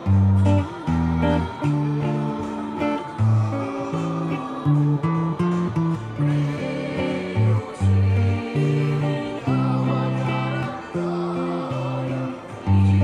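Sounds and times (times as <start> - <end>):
electric guitar fingerpicked: 0.0 - 13.0.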